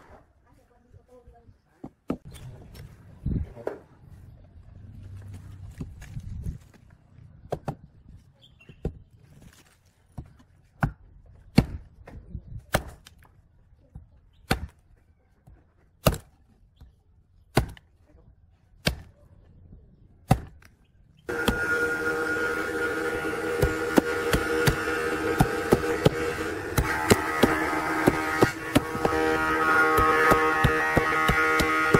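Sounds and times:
axe chopping wood: 7.5 - 7.8, 10.2 - 13.3, 14.4 - 14.8, 16.0 - 16.4, 17.5 - 17.9, 18.8 - 19.1, 20.2 - 20.7, 23.6 - 31.9.

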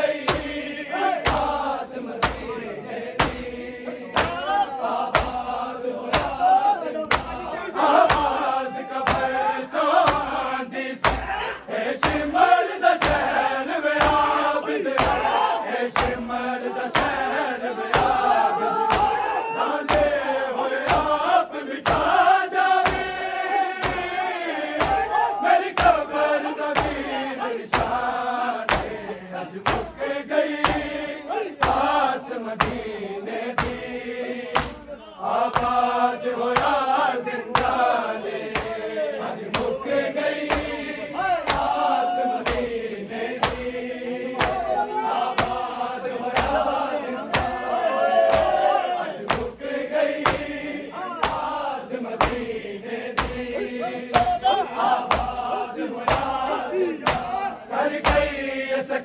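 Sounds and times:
men chanting in unison: 0.0 - 59.0
hand strikes on chest: 0.3 - 0.6, 2.2 - 2.5, 3.2 - 3.5, 5.1 - 5.5, 6.1 - 6.4, 22.8 - 23.1, 28.7 - 29.0, 30.6 - 30.9, 34.6 - 34.8, 41.5 - 41.8, 43.4 - 43.7, 53.2 - 53.5.

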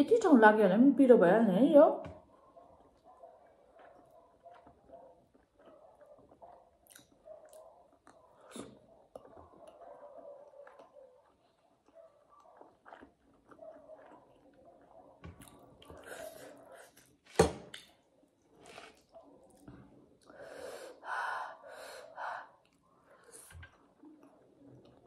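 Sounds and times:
chewing: 2.3 - 17.2, 17.8 - 20.4, 22.6 - 25.0.

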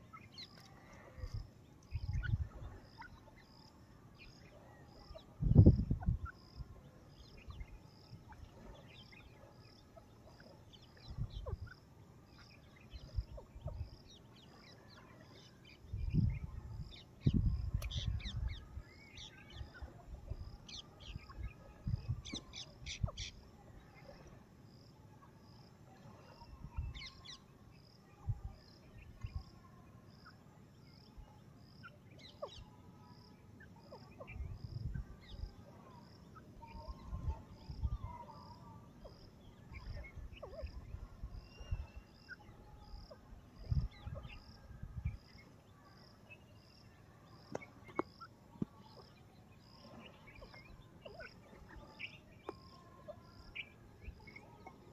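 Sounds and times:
birds chirping and whistling: 0.0 - 3.5, 39.0 - 45.3.

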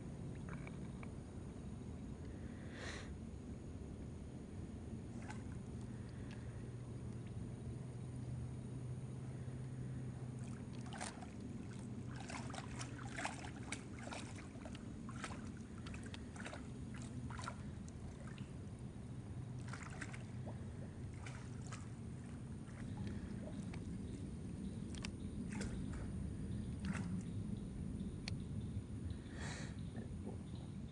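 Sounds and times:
steady low hum: 0.0 - 30.9
small splashes in water: 5.1 - 6.4, 10.3 - 24.2, 24.8 - 26.2, 26.8 - 27.3.

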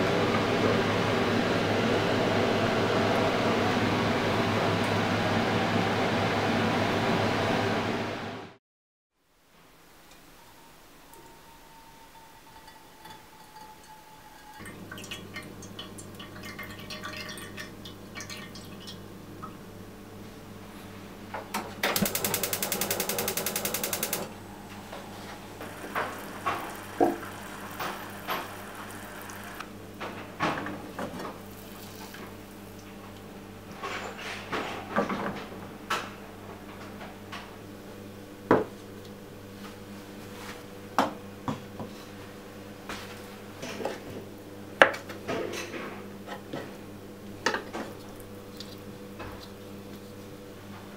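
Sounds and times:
gas stove igniter clicking: 21.8 - 24.3
sauce boiling and bubbling: 24.6 - 29.6.

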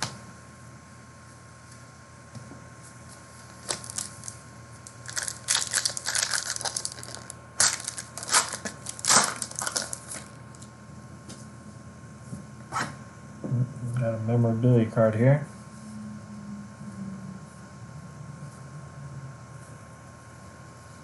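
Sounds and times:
plastic wrapper tearing and crinkling: 3.6 - 10.7.

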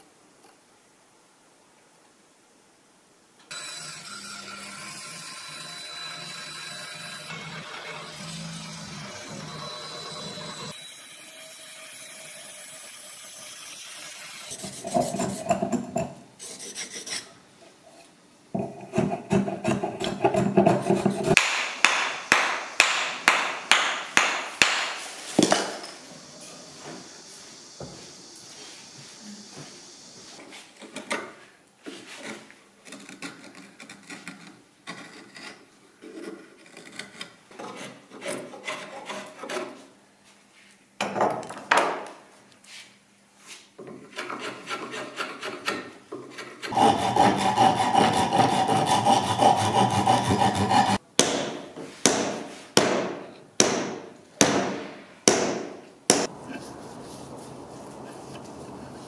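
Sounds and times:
hand tools scraping wooden handle: 3.5 - 10.8, 14.2 - 21.4, 31.9 - 39.9, 43.5 - 51.0.

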